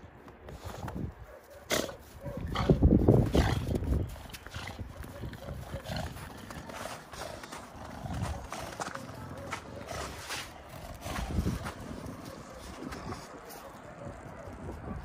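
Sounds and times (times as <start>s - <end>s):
dog snorting and grunting: 1.7s - 13.3s.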